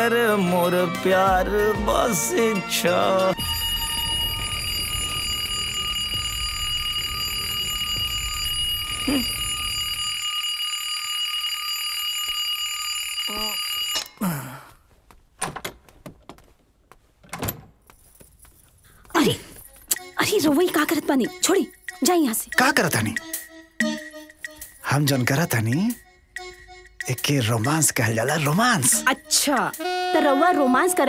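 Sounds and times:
alarm clock ringing: 3.4 - 14.2.

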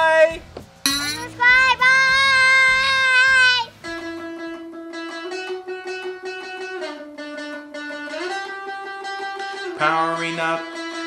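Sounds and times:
plucked string melody: 3.8 - 11.0.

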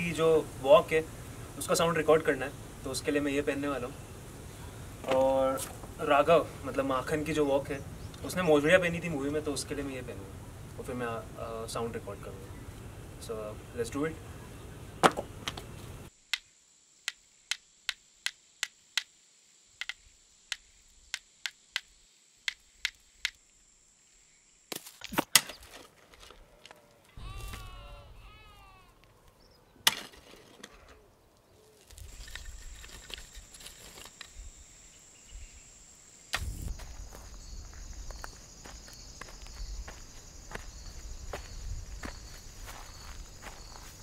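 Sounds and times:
high insect drone: 16.0 - 24.7, 27.1 - 29.0, 31.9 - 44.0
sandal footsteps on dry ground: 24.7 - 29.2, 36.4 - 44.0
hoe striking hard earth: 29.8 - 30.9.

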